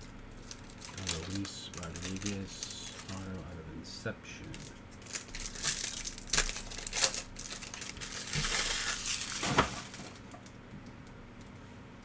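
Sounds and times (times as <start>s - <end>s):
foil wrapper tearing and crinkling: 0.4s - 3.2s, 4.5s - 10.2s.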